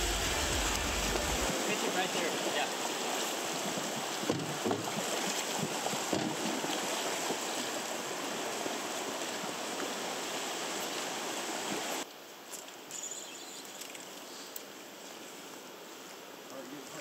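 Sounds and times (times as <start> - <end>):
river water rushing: 0.0 - 12.9.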